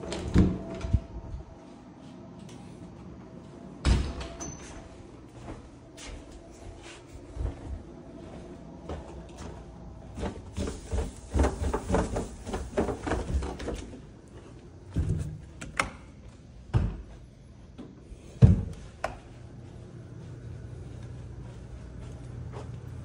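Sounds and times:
footsteps: 4.6s - 15.5s, 18.3s - 23.0s.

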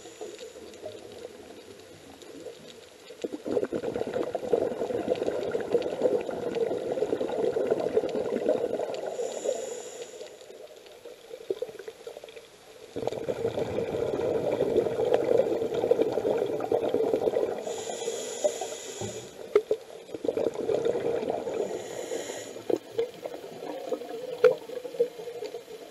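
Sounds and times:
regulator inhalation hiss: 0.0s - 0.7s, 9.0s - 10.7s, 17.6s - 19.6s, 21.4s - 23.1s
bubbling exhalations underwater: 3.2s - 9.1s, 13.0s - 17.7s, 19.5s - 21.8s.

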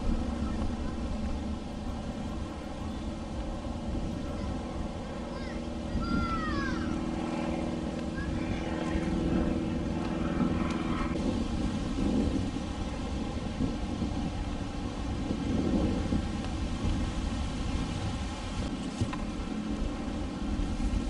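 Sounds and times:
outboard motor droning: 0.0s - 21.0s.

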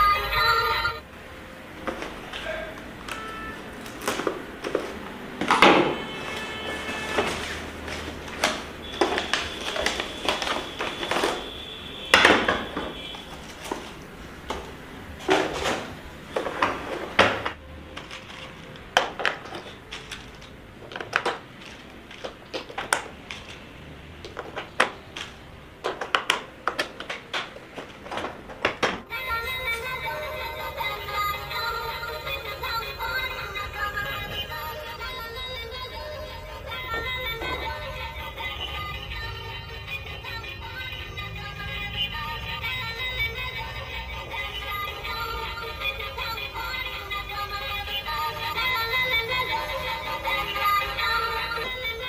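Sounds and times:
cardboard packaging rustling: 3.8s - 11.7s, 12.4s - 29.1s.

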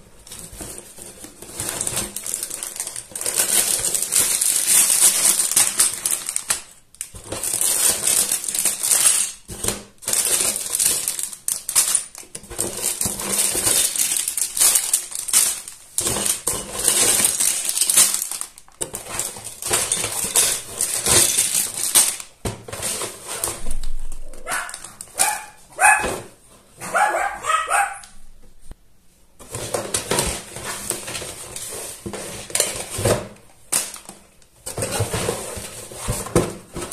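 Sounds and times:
plastic bags crinkling: 0.0s - 26.2s, 29.5s - 36.9s
plastic bricks rattling: 0.2s - 25.4s.

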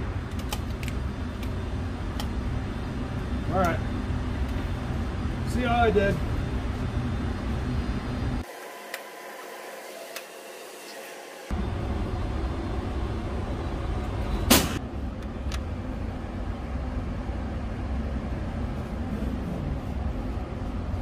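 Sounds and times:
low background rumble: 0.0s - 8.4s, 11.5s - 21.0s
loud gunshot bang: 14.5s - 14.8s.

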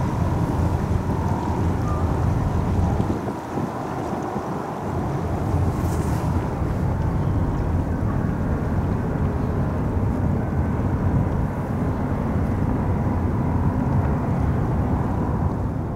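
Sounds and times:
ferry engines rumbling: 0.0s - 15.9s.

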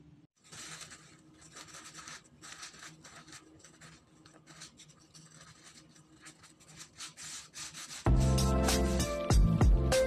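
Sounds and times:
paper towel rustling and rubbing: 0.4s - 9.1s.

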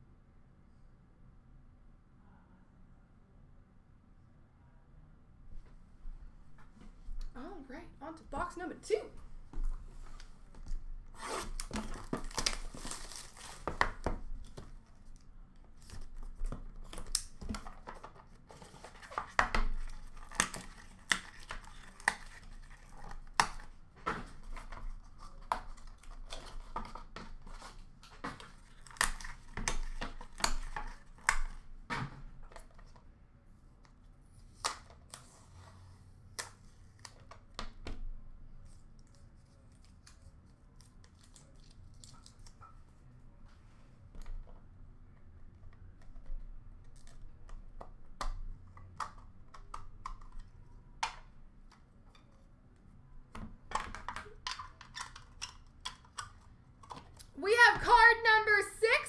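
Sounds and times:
packaging ripping and crackling: 11.2s - 14.0s.

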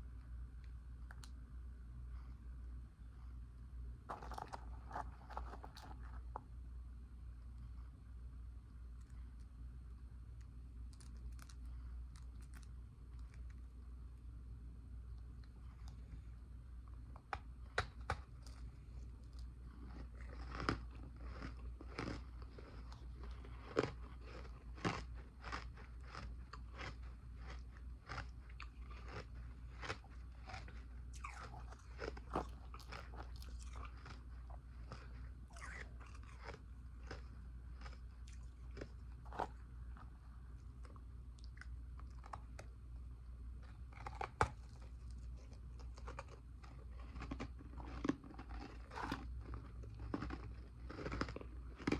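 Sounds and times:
ice crunching while chewed: 4.1s - 6.4s, 10.9s - 13.7s, 17.2s - 42.7s, 43.6s - 51.9s.

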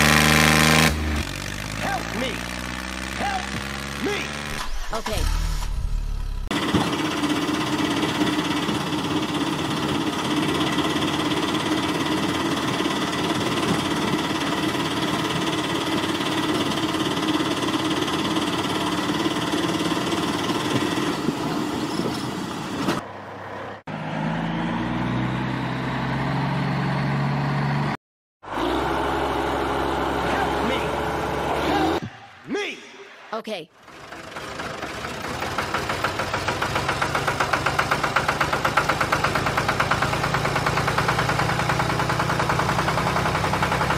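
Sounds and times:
engine idling with knocking: 6.4s - 21.4s, 33.8s - 43.9s.

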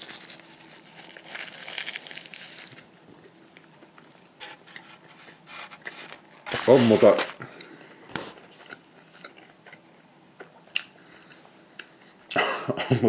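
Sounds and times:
paper wrapper crinkling: 0.0s - 2.9s, 4.4s - 7.5s.

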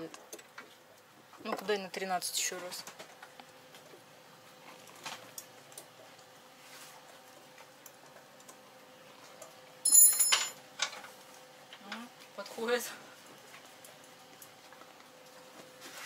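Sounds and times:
loud metallic clink: 9.9s - 10.6s.

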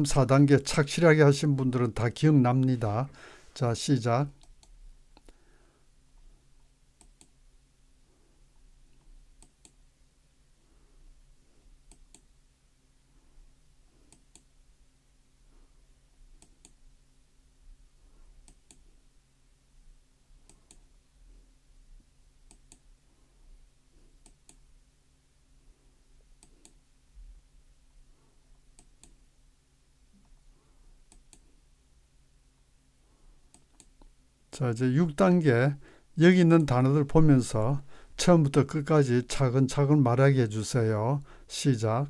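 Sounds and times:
low steady hum: 0.0s - 42.0s
computer mouse clicks: 7.0s - 7.4s, 9.0s - 9.8s, 11.9s - 12.3s, 14.1s - 14.5s, 16.4s - 16.8s, 18.4s - 18.9s, 20.4s - 20.9s, 22.5s - 22.8s, 24.2s - 24.6s, 26.4s - 26.8s, 28.8s - 29.2s, 31.1s - 31.5s, 33.5s - 34.1s.

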